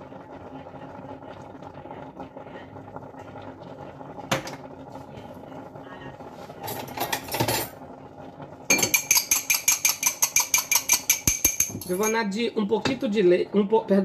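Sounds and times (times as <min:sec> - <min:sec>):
kitchen clatter: 0:06.6 - 0:07.8, 0:08.7 - 0:13.1
utensil beating egg in bowl: 0:08.7 - 0:13.0.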